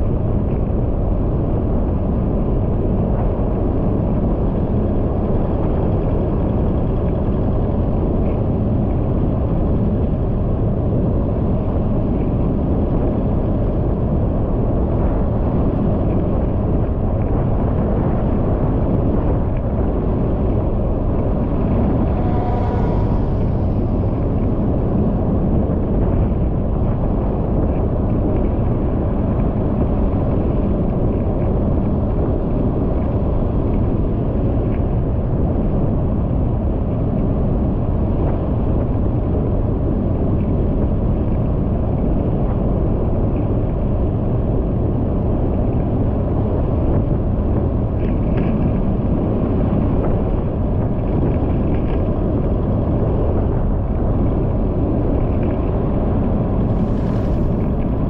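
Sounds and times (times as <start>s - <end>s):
wind noise: 0.0s - 58.0s
road noise: 5.1s - 29.3s, 52.4s - 58.0s
vehicle engine: 18.9s - 27.6s, 55.0s - 58.0s.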